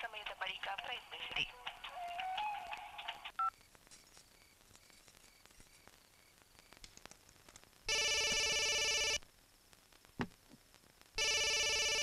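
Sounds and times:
phone ringtone: 7.9s - 9.2s, 11.2s - 12.0s.

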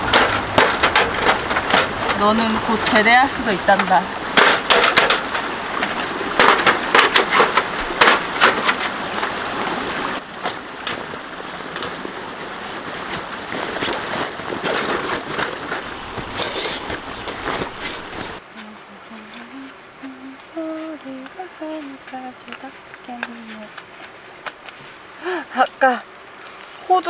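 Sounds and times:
sheet metal clanking: 0.0s - 5.5s
creek flowing: 0.0s - 27.0s
fabric bag rustling: 12.8s - 18.4s.

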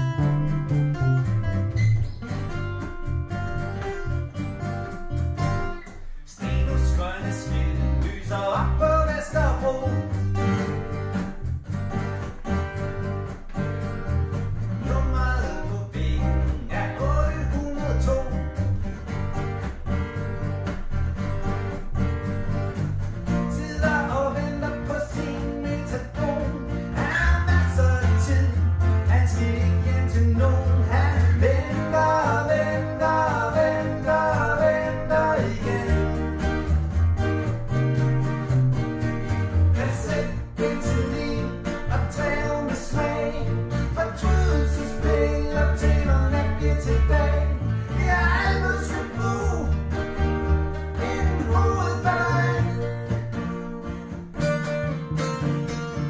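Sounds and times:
bass guitar: 0.0s - 56.0s
second guitar: 0.0s - 56.0s
strummed acoustic guitar: 0.0s - 56.0s
man singing: 6.3s - 10.2s, 14.8s - 18.6s, 23.3s - 36.4s, 39.8s - 49.8s, 50.9s - 53.1s.

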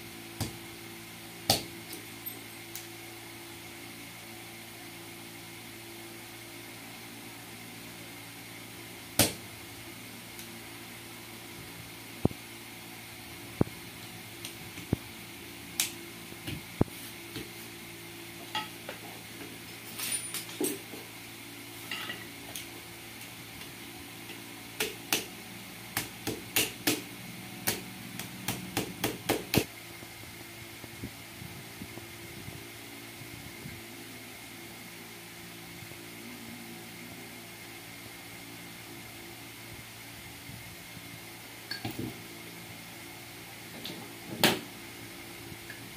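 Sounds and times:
metal tools clinking on concrete: 1.9s - 2.8s, 18.5s - 18.9s, 19.6s - 20.9s, 21.8s - 22.3s.

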